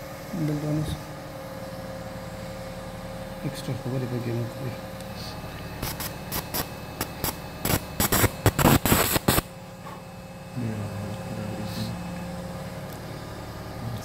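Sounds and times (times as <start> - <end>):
low steady hum: 0.0 - 14.0
electrocautery crackling and hissing: 5.0 - 10.1.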